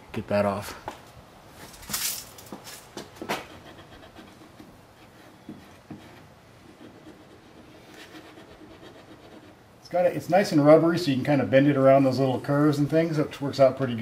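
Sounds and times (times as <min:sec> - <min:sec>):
eraser rubbing on plastic: 0:03.2 - 0:09.6.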